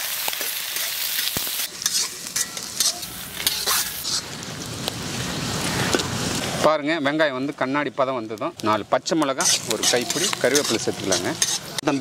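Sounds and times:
onions sizzling in hot oil: 0.0s - 12.0s
metal ladle scraping pan: 0.8s - 4.4s, 9.2s - 12.0s.

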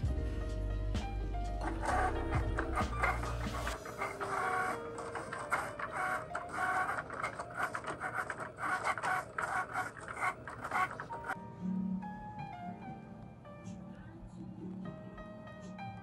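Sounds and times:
cutting machine motors whirring: 1.6s - 11.4s.

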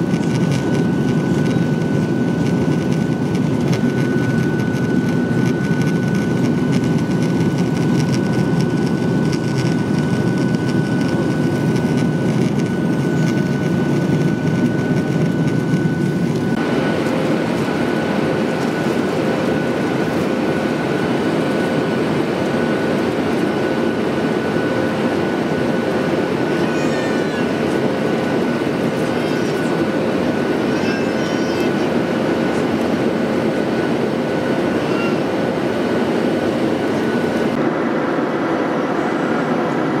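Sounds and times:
aircraft cabin roar: 0.0s - 40.0s.

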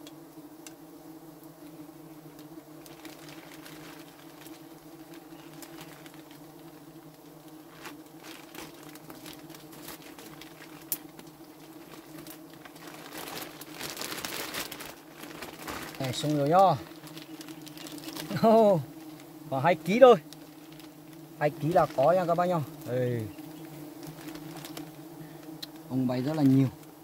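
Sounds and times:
bees humming: 0.0s - 27.0s
plastic bag crinkling: 2.8s - 6.4s, 7.7s - 19.3s, 20.2s - 22.4s, 23.3s - 25.0s.

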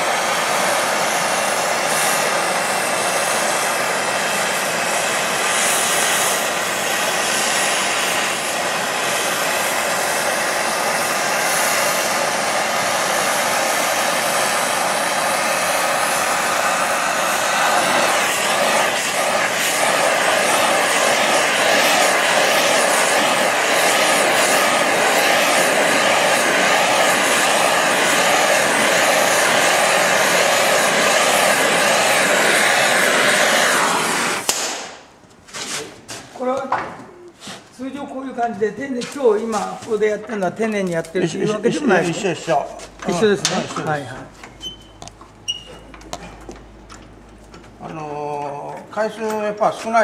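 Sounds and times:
gas torch flame hissing: 0.0s - 36.2s, 37.3s - 46.6s.

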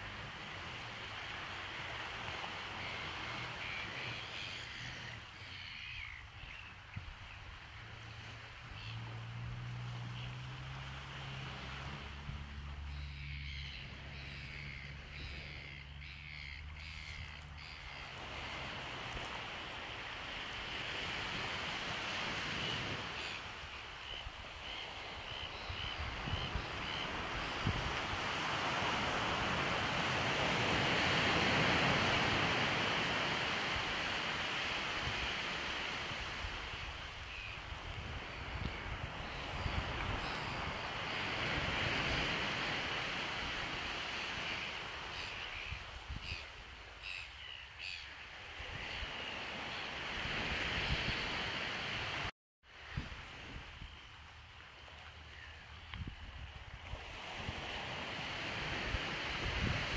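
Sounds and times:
bird calls: 2.8s - 7.5s, 12.8s - 18.6s, 22.6s - 27.6s, 44.1s - 49.9s
surf washing onto beach: 18.1s - 25.3s, 26.0s - 46.7s, 48.5s - 53.8s, 56.0s - 59.9s.

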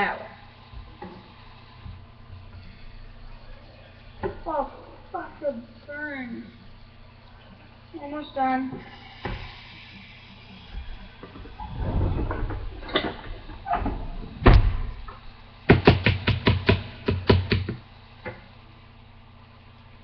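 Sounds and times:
knocks and clicks on grill: 12.9s - 18.4s.

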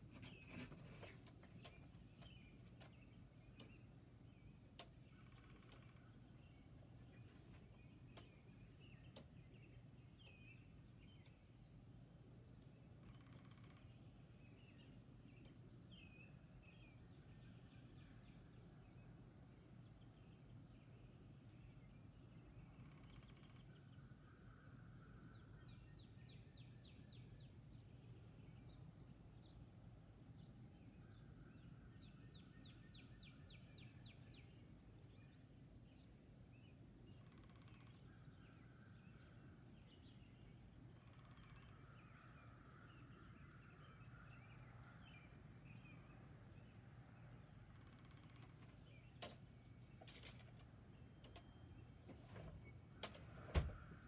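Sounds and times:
faint songbirds singing: 0.0s - 54.0s.

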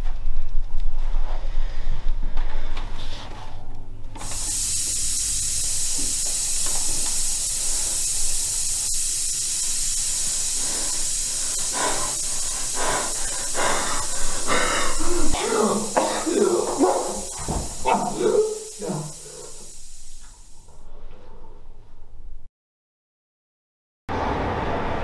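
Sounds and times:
person breathing: 1.3s - 3.2s, 7.2s - 20.2s
gas hissing from valve: 4.2s - 20.8s.

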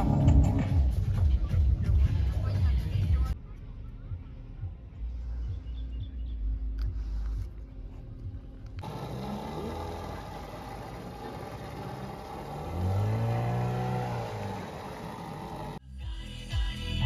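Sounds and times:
outboard motor passing by: 8.8s - 15.8s.

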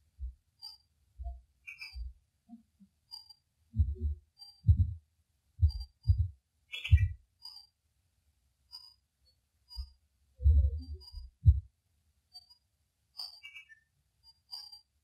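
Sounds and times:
faint high chirps: 0.6s - 5.0s, 5.6s - 7.8s, 8.7s - 11.7s, 13.2s - 14.9s
low thuds and rumbles: 3.8s - 5.0s, 5.6s - 6.3s, 11.4s - 11.7s.

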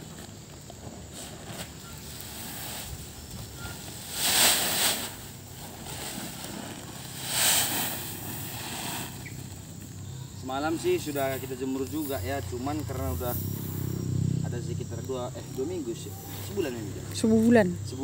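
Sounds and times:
rice grain pouring onto tarpaulin: 1.2s - 9.8s.

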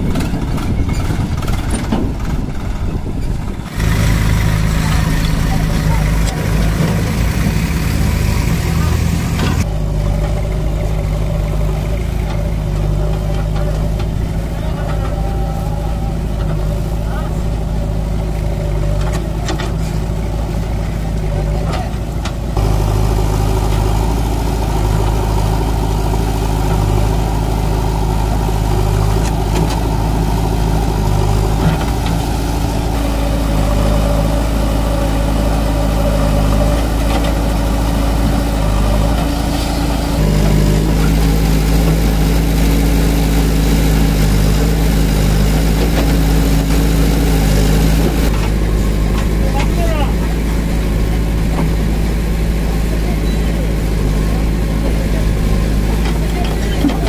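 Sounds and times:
diesel engines idling: 0.0s - 57.0s.

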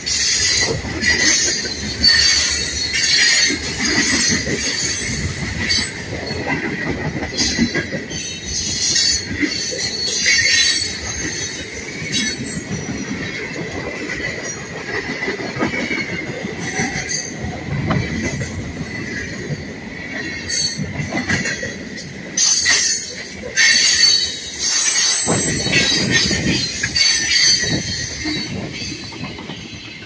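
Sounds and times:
train wheels rumbling on rails: 0.0s - 30.0s
wheels squealing: 22.4s - 30.0s.

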